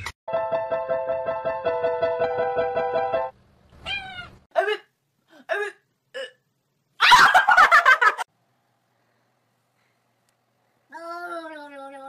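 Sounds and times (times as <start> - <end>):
person laughing hard: 7.0 - 8.3.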